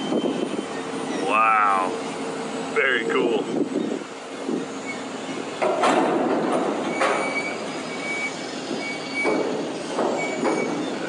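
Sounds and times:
crane machinery noise: 0.0s - 11.0s
metal clank: 5.6s - 7.5s
thin high squeal: 6.9s - 11.0s.

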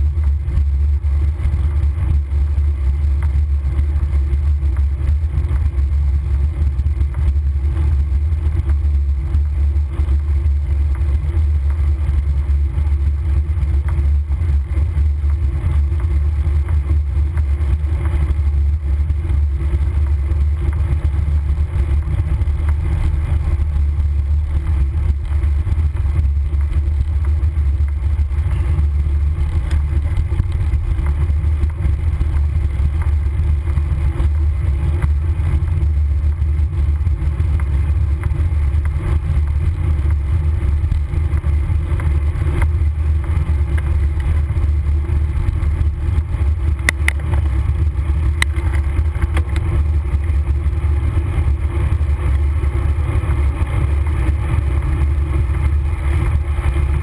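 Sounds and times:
road and tyre noise: 0.0s - 57.0s
faint clicks: 46.8s - 47.5s, 48.3s - 49.8s.

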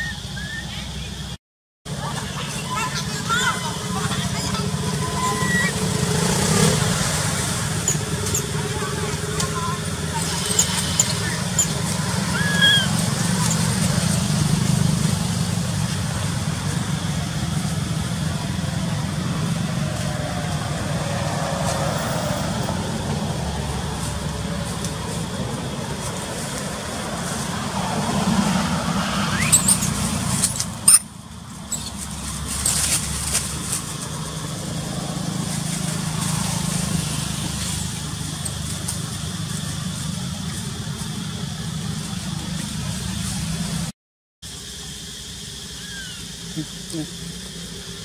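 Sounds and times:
engine rumbling: 0.0s - 48.0s
short rising squeal: 10.1s - 13.7s, 29.0s - 31.1s.

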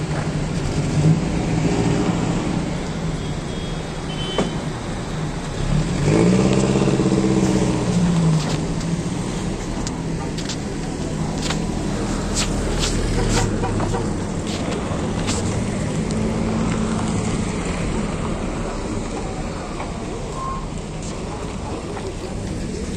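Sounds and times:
pickup trucks driving past: 4.7s - 22.9s.

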